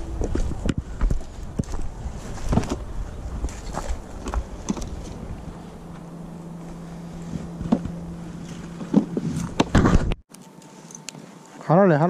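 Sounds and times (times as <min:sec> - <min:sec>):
small motor humming: 0:00.0 - 0:09.8.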